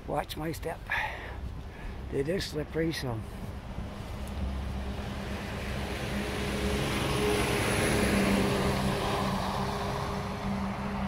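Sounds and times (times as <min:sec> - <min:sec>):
passing vehicle engine drone: 0:03.6 - 0:11.0.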